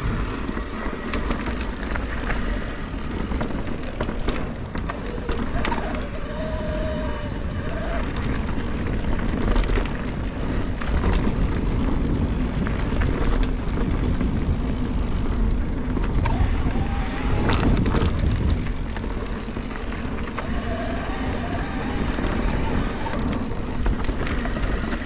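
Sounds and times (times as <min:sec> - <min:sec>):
bike knocks and rattles: 0:00.0 - 0:25.0
tyres rumbling over dirt: 0:00.0 - 0:25.0
wind rushing over microphone: 0:00.0 - 0:25.0.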